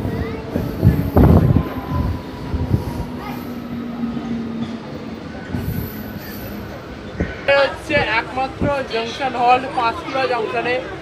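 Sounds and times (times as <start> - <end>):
train rumbling: 0.0 - 9.7
wheel and brake squeals: 5.4 - 7.4.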